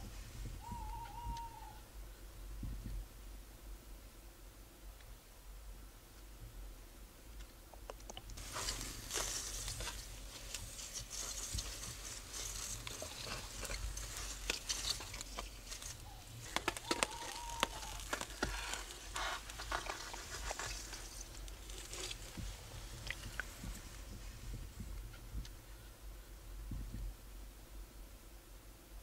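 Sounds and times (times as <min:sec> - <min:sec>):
scraping and crunching on ice: 0:08.4 - 0:22.4.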